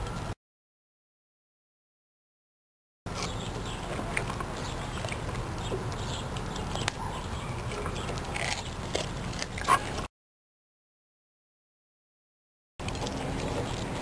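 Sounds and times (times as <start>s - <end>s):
dog chewing fish: 3.1s - 10.1s, 12.8s - 14.0s.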